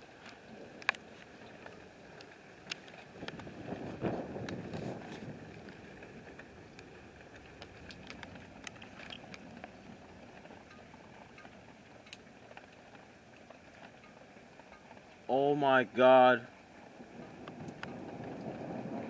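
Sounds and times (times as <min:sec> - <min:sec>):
sharp ticks: 0:10.6 - 0:15.0.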